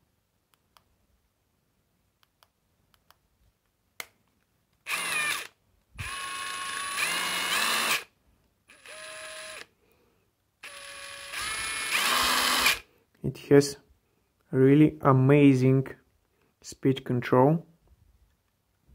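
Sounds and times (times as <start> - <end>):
impact driver motor whine: 4.9 - 8.1, 8.7 - 9.7, 10.6 - 12.8.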